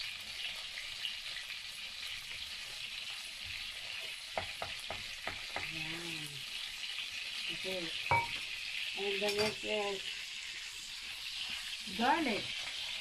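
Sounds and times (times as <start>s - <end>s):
chicken sizzling in a frying pan: 0.0s - 13.0s
wooden spatula clicking on pan: 4.4s - 5.7s.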